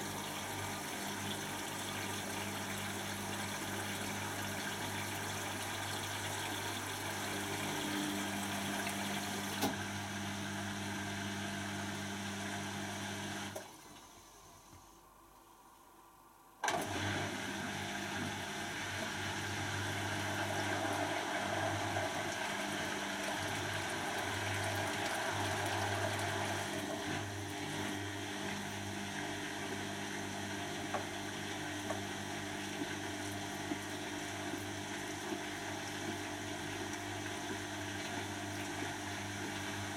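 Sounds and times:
washing machine drum spinning: 0.0s - 9.6s, 19.8s - 27.1s
washing machine pump humming: 0.0s - 15.2s, 16.7s - 39.9s.

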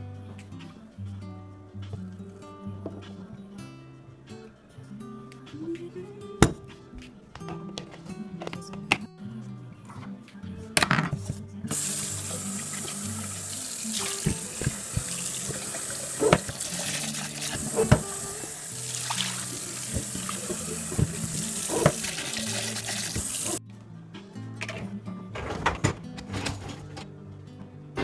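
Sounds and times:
faucet running into glass jar: 11.7s - 23.6s.

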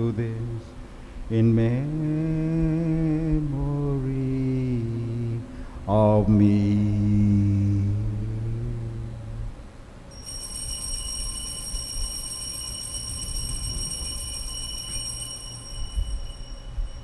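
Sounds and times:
altar bells ringing: 10.1s - 17.0s.

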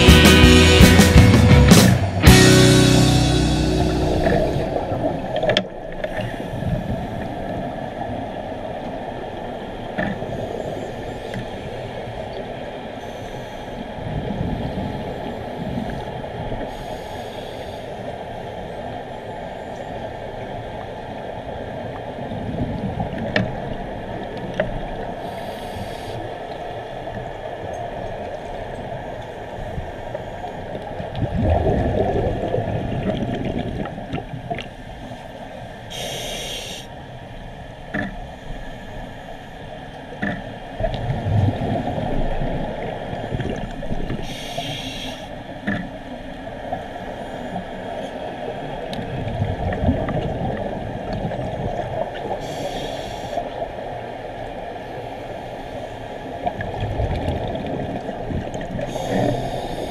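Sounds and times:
underwater rumble: 1.7s - 17.3s, 17.9s - 59.9s
regulator inhalation hiss: 16.7s - 18.1s, 25.2s - 26.3s, 35.9s - 37.0s, 44.2s - 45.4s, 52.4s - 53.4s, 58.9s - 59.9s
exhaled bubbles gurgling: 30.8s - 34.8s, 40.8s - 45.1s, 48.7s - 53.4s, 56.5s - 59.9s.

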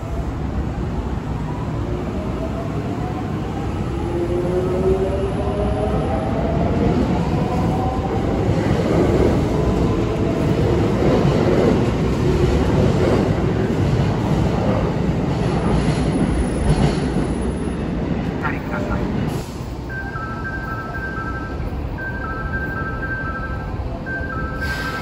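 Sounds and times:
train wheels clattering on rail: 8.4s - 18.4s.

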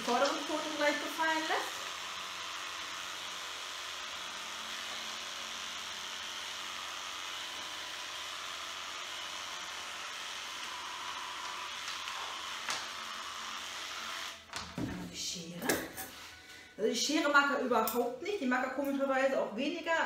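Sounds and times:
electric clipper buzzing: 0.0s - 14.8s.

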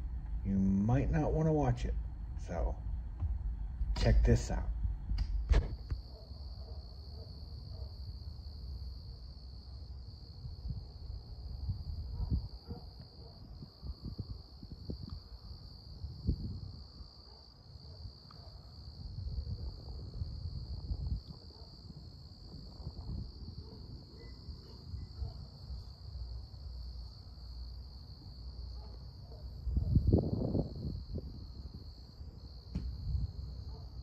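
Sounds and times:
low rumbles: 0.0s - 5.9s
crickets trilling: 5.4s - 34.0s.

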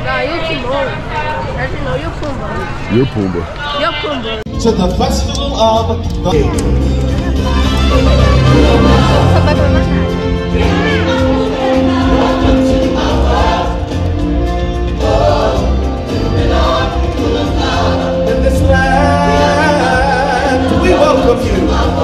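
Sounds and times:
music with pulsing bass: 4.5s - 22.0s
choir singing: 7.2s - 22.0s.

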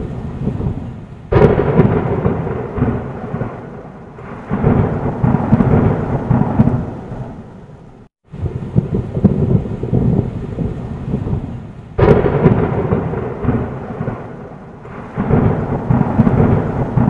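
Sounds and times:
rolling thunder rumble: 0.0s - 17.0s
thunder crack: 0.0s - 17.0s.

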